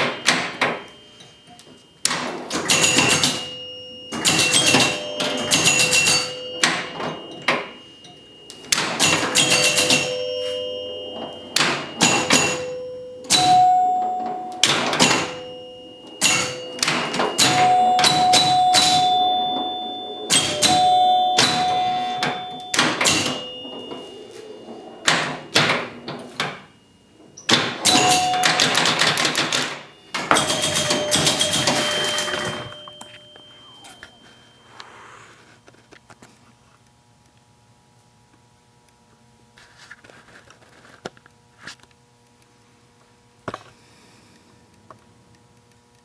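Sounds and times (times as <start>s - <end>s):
bell-like chime tones: 0.0s - 2.0s, 2.7s - 35.6s
pinball machine clacks: 0.0s - 34.0s.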